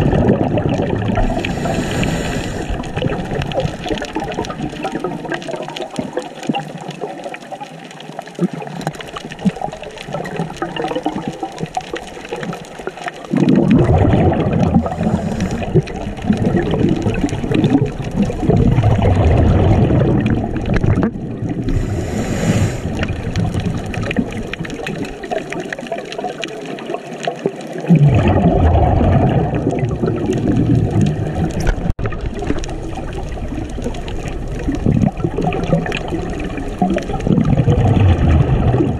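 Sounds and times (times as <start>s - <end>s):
regulator bubbling exhalation: 0.0s - 6.2s, 8.4s - 26.2s, 27.8s - 38.9s
underwater noise: 0.0s - 38.9s
regulator hiss: 1.4s - 2.8s, 21.7s - 23.0s.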